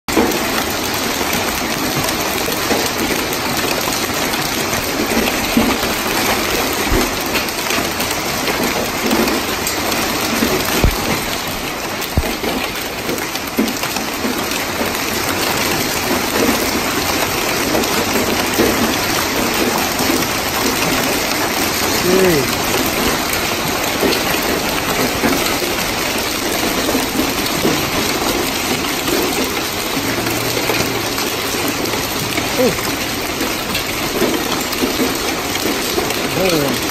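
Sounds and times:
hail and heavy rain pelting: 0:00.1 - 0:36.9.

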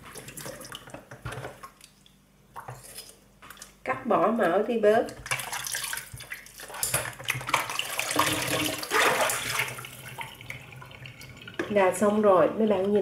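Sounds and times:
tap water running and splashing: 0:05.1 - 0:13.0.

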